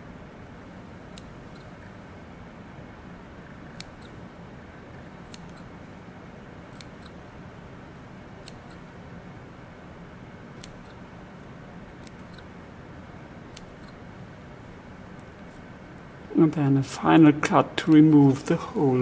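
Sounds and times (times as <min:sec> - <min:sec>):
scissors snipping clicks: 0:01.1 - 0:01.8, 0:03.7 - 0:04.2, 0:05.2 - 0:05.7, 0:06.7 - 0:07.2, 0:08.4 - 0:08.9, 0:10.5 - 0:11.0, 0:12.0 - 0:12.5, 0:13.5 - 0:14.0.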